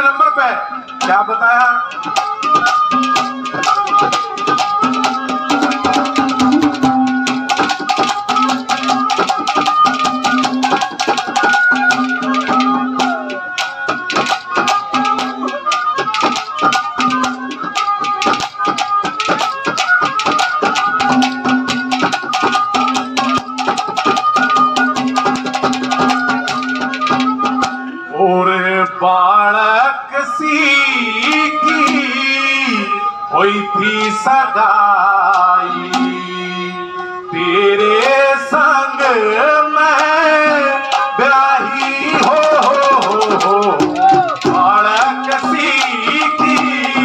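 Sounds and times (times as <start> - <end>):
sustained melody line: 0.7 - 28.7
fast hand-drum rhythm: 1.0 - 27.9, 31.2 - 32.2, 39.9 - 47.0.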